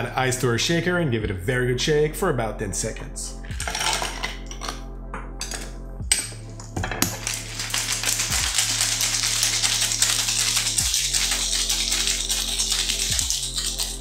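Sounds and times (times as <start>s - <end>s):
ice rattling in cocktail shaker: 3.6s - 4.8s, 7.1s - 14.0s
metal tin clicks: 3.6s - 4.8s.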